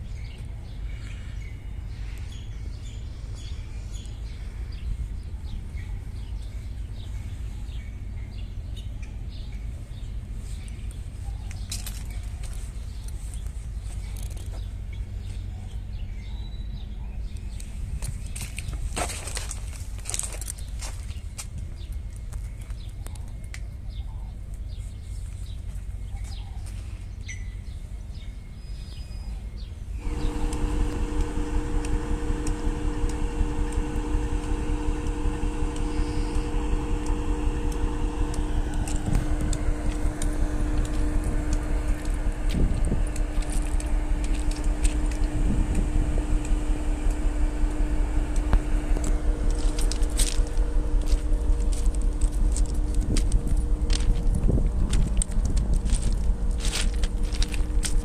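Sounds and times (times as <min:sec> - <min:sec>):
diesel locomotive rumbling: 0:29.3 - 0:58.0.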